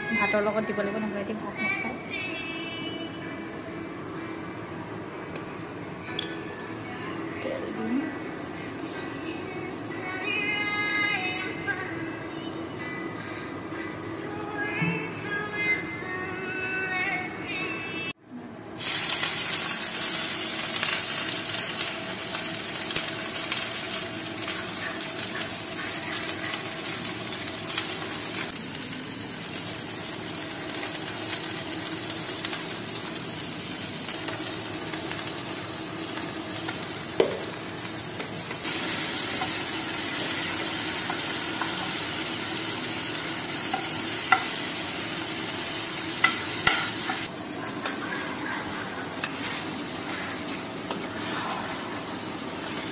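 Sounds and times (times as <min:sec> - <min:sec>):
food sizzling in oil: 0:18.8 - 0:52.9.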